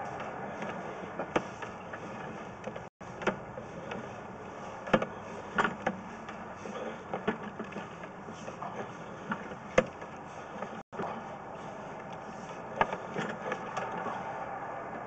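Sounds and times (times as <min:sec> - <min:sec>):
sharp clicks and knocks: 0:00.0 - 0:04.1.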